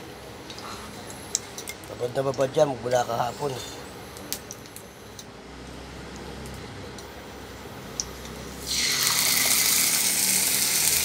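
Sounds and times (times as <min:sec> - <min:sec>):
meat sizzling in a pan: 0:08.6 - 0:11.0.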